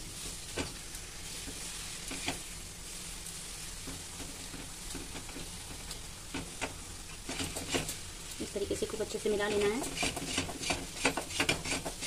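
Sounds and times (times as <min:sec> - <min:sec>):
hot pan hissing: 0:00.0 - 0:12.0
metal spatula scraping a pan: 0:07.2 - 0:08.0, 0:09.5 - 0:12.0.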